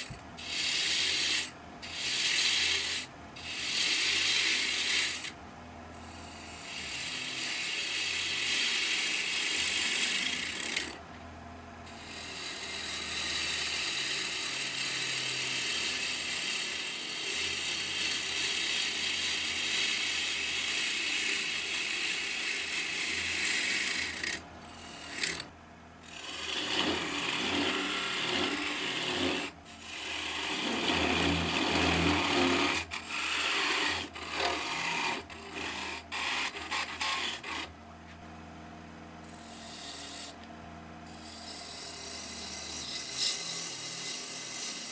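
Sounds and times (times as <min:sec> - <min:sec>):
gouge scraping wood on lathe: 0:00.0 - 0:11.0, 0:11.9 - 0:37.7, 0:39.2 - 0:40.5, 0:41.1 - 0:44.9
lathe motor hum: 0:11.9 - 0:37.7, 0:39.2 - 0:40.5, 0:41.2 - 0:44.9.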